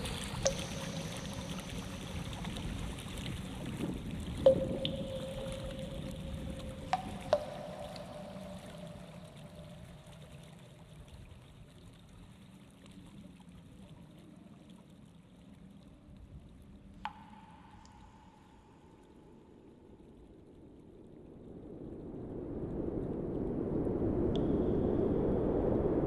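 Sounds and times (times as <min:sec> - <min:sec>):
soft water-like rushing: 0:00.0 - 0:26.0
struck ringing tones: 0:04.5 - 0:09.2.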